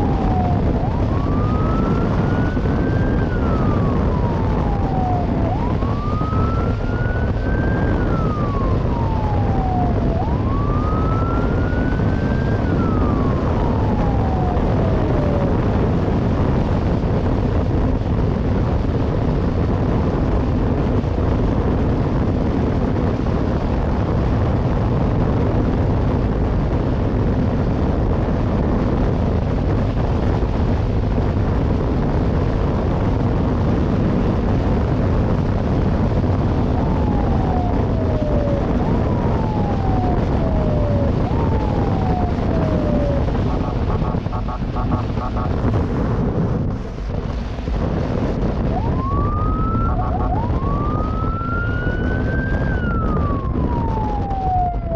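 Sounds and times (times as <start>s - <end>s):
siren wailing: 0.0s - 16.8s, 35.8s - 54.9s
wind rush: 0.0s - 54.9s.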